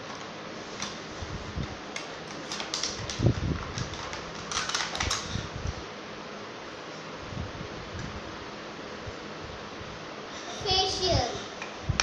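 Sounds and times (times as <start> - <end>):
plastic parts clicking and clattering: 2.0 - 5.3.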